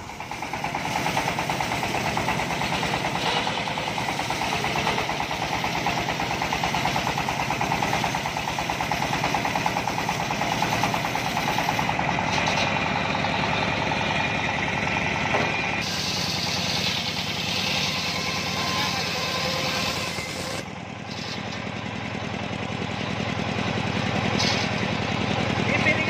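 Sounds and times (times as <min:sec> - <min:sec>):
engine chugging: 0:00.0 - 0:26.0.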